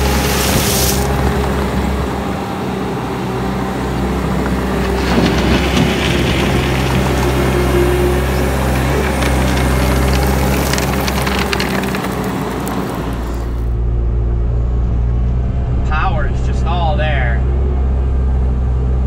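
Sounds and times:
tracks grinding over gravel: 0:00.0 - 0:02.6, 0:04.1 - 0:13.7
gravel crunching and rattling: 0:00.0 - 0:13.8
diesel engine under load: 0:00.0 - 0:19.0.

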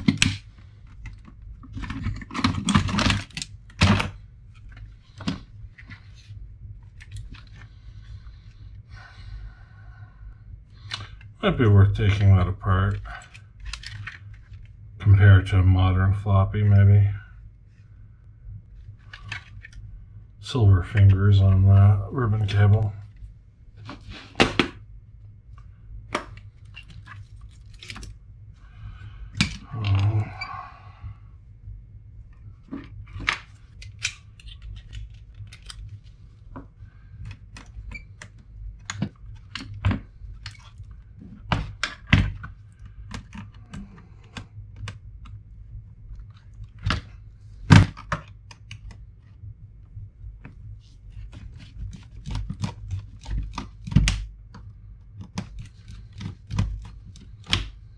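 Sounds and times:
steady low hum: 0:00.0 - 0:57.9
plastic laptop parts clicking: 0:32.7 - 0:36.0, 0:41.4 - 0:45.4, 0:47.7 - 0:49.0, 0:51.3 - 0:57.8.

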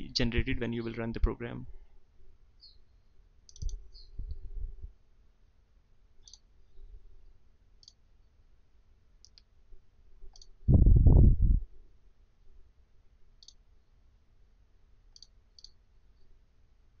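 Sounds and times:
computer mouse clicks: 0:03.5 - 0:03.8, 0:06.2 - 0:06.5, 0:07.8 - 0:08.0, 0:09.2 - 0:09.5, 0:10.3 - 0:10.6, 0:13.4 - 0:13.6, 0:15.1 - 0:15.8
soft low thumps: 0:10.7 - 0:11.7.

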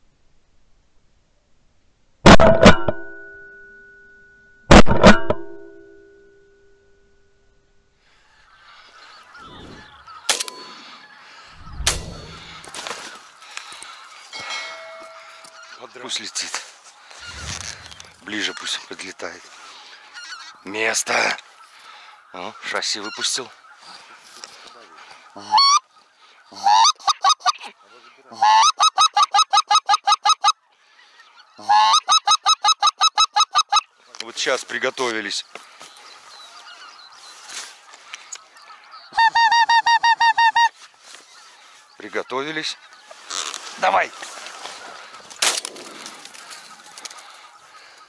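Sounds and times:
geese honking: 0:08.1 - 0:48.0
shotgun shots: 0:11.6 - 0:12.7.

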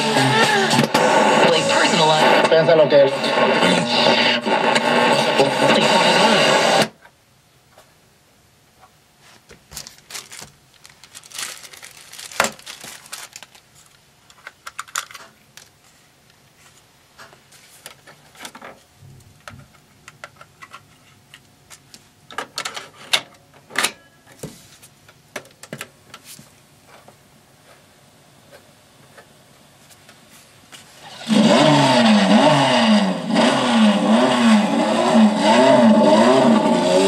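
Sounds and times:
hands clicking and rattling boombox: 0:14.2 - 0:16.4, 0:17.2 - 0:23.4.

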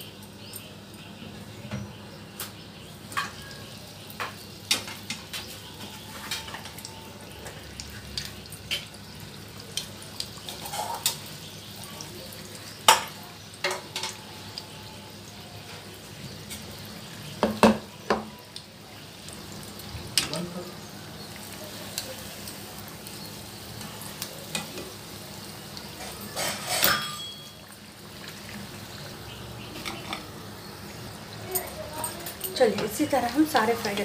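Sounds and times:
food sizzling in oil: 0:00.0 - 0:34.0
metal utensil clinking: 0:25.9 - 0:27.7.

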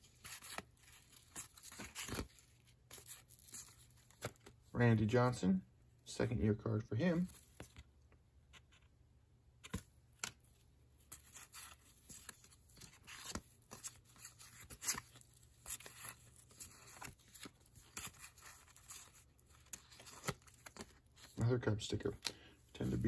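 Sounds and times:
cards flicking and sliding: 0:09.6 - 0:10.4.

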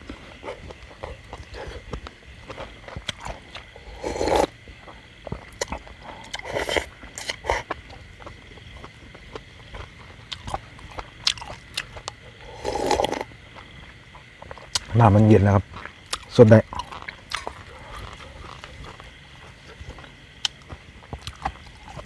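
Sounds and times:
chewing and lip-smacking: 0:00.0 - 0:15.0, 0:15.7 - 0:22.0
gulps of drinking: 0:03.1 - 0:04.6, 0:12.3 - 0:13.3
loud slurps: 0:03.3 - 0:04.5, 0:06.3 - 0:07.7, 0:12.4 - 0:13.3.

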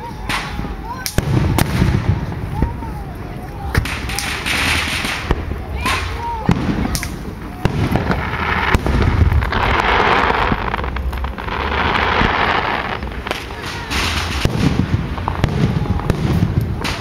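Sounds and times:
fireworks bangs: 0:00.0 - 0:17.0
fireworks crackling: 0:00.0 - 0:17.0.

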